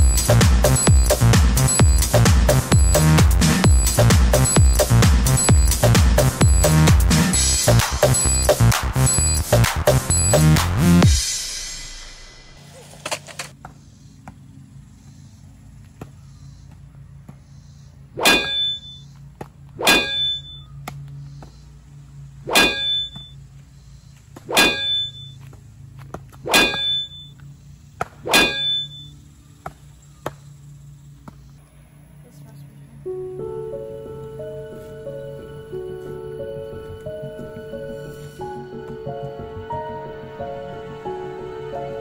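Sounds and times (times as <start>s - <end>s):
metallic sword clangs: 18.2s - 19.0s, 19.8s - 20.6s, 22.5s - 23.3s, 24.5s - 25.2s, 26.5s - 27.2s, 28.2s - 29.0s.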